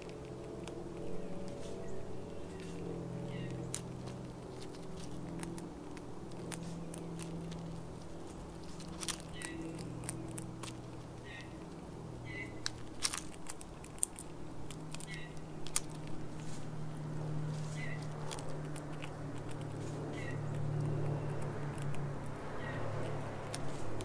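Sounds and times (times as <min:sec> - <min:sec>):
low background hum: 0:00.0 - 0:24.0
squirrel crunching seeds and nuts: 0:00.0 - 0:24.0.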